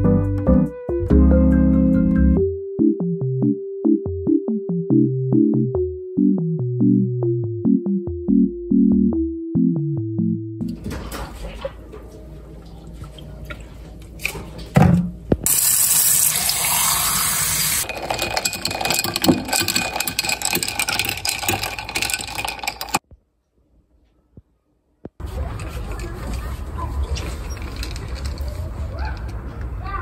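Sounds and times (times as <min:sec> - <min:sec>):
tap water running into sink: 0:15.5 - 0:17.8.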